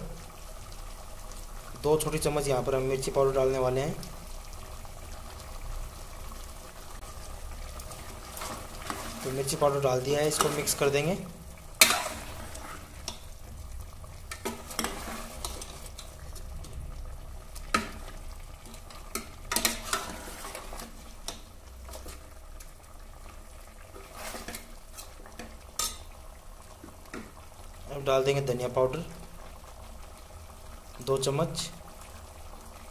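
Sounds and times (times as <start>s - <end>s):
faint sizzle of frying: 0.0s - 32.9s
metal ladle clinking and scraping pot: 10.3s - 10.9s, 11.8s - 13.3s, 14.3s - 16.1s, 17.7s - 21.0s, 24.0s - 26.1s.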